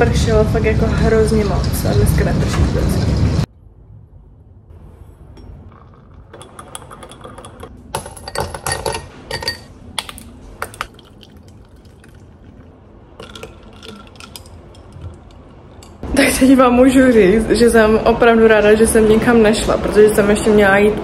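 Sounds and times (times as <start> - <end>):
ice cubes clinking in glass: 5.9 - 16.0.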